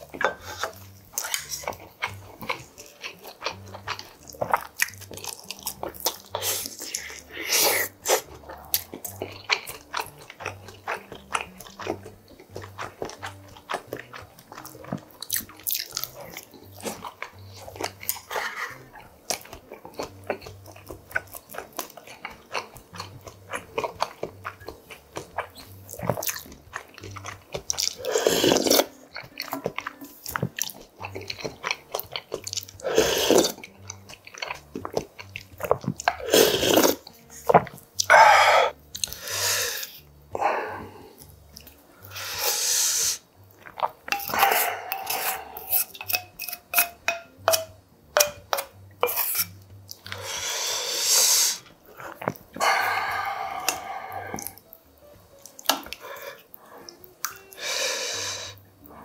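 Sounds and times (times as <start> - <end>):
chewing: 0.0 - 59.0
man slurping broth: 32.8 - 33.6, 36.2 - 37.0, 38.1 - 41.2, 42.1 - 43.2, 44.1 - 46.0, 50.1 - 54.6, 57.6 - 58.6
spoon clicking against bowl: 44.1 - 44.4, 45.0 - 49.5.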